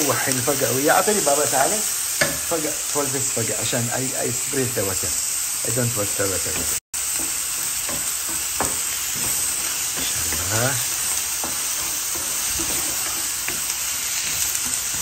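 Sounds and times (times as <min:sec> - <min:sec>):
onions sizzling in a frying pan: 0:00.0 - 0:15.0
wooden spoon scraping a pan: 0:05.8 - 0:15.0.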